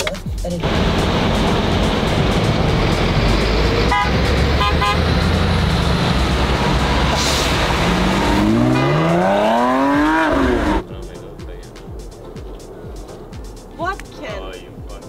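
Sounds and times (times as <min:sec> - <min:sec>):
road traffic rumble: 0:00.0 - 0:15.0
vehicle engine revving: 0:00.6 - 0:10.9
car horn toots: 0:03.8 - 0:10.8.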